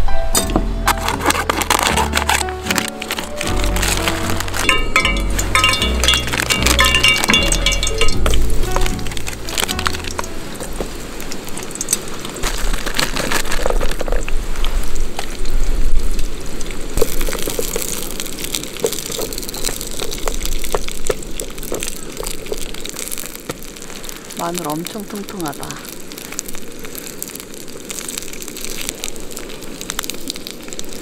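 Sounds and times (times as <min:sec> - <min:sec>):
tongs clicking and scraping pan: 0:00.4 - 0:10.3
vegetables sizzling in frying pan: 0:01.0 - 0:31.0.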